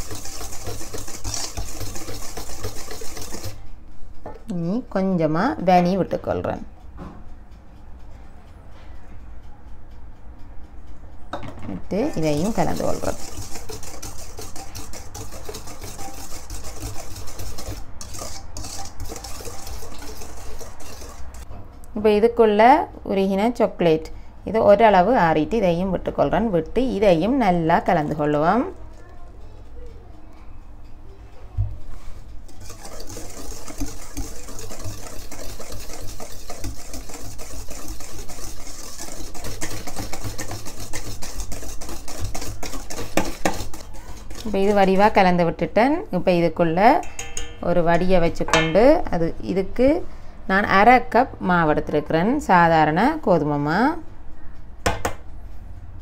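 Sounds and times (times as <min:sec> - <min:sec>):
liquid sloshing: 0:00.0 - 0:03.6, 0:12.2 - 0:21.4, 0:32.5 - 0:45.2
whisk beating in metal bowl: 0:00.0 - 0:03.6, 0:11.9 - 0:21.5, 0:32.0 - 0:49.1.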